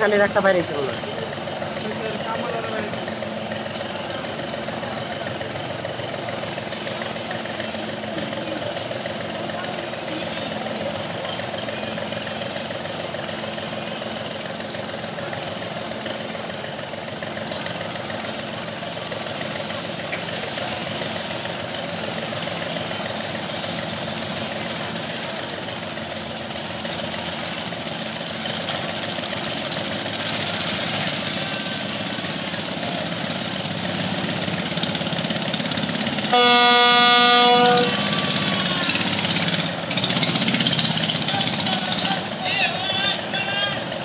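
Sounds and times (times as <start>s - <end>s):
harbour noise: 0.0s - 44.0s
boat engine running: 28.7s - 44.0s
loud boat horn: 36.3s - 38.8s.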